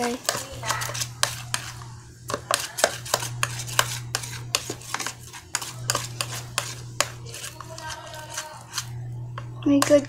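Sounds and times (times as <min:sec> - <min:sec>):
spoon stirring slime in tub: 0:00.0 - 0:10.0
low hum: 0:08.8 - 0:10.0.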